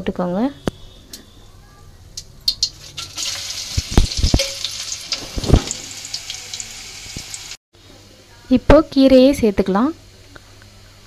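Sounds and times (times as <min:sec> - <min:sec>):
garlic and chillies sizzling in oil: 0:02.4 - 0:07.6.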